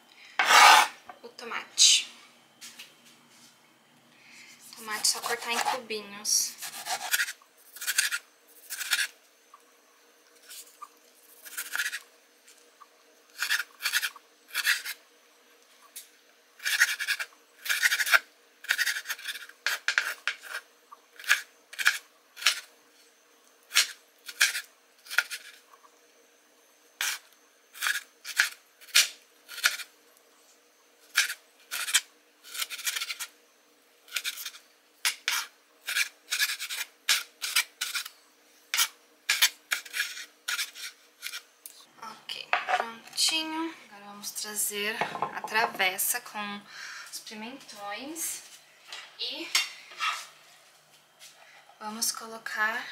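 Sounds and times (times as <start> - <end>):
knife cutting on cutting board: 0.4 - 1.0, 6.6 - 9.1.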